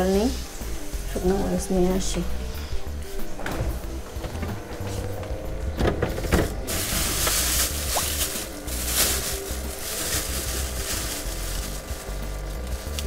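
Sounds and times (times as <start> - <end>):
background music: 0.0 - 13.0
plastic bag rustling: 6.1 - 13.0.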